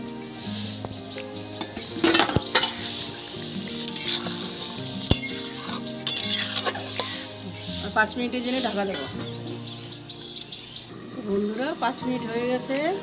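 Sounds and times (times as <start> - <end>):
curry bubbling and sizzling in pan: 0.1 - 13.0
spatula clinking against pan: 1.6 - 7.3.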